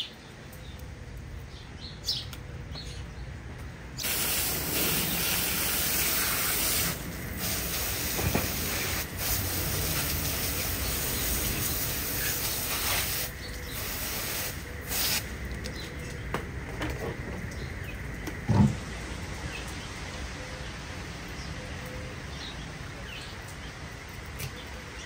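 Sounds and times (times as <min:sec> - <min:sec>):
water spraying from hose nozzle: 0:04.0 - 0:15.8.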